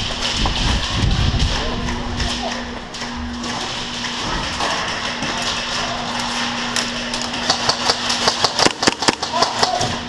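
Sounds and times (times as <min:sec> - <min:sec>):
steady hum and hiss: 0:00.0 - 0:10.0
airsoft gun cracks: 0:07.5 - 0:09.8.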